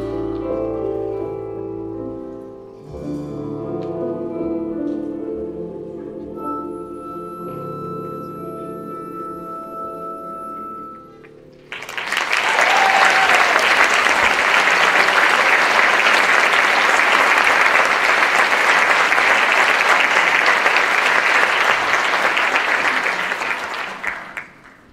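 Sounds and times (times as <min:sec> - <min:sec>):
audience applauding: 0:11.6 - 0:24.9.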